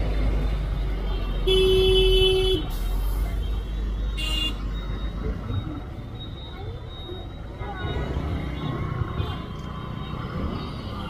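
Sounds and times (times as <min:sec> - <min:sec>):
low rumble of traffic: 0:00.0 - 0:11.0
vehicle horn honking: 0:01.4 - 0:02.7.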